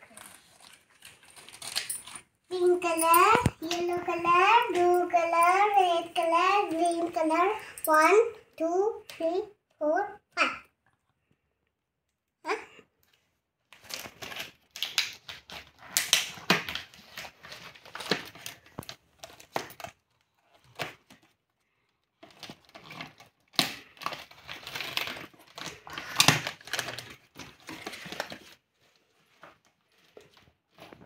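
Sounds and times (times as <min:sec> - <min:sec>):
plastic packaging crinkling: 0:00.0 - 0:07.2, 0:13.7 - 0:21.4, 0:22.1 - 0:31.0.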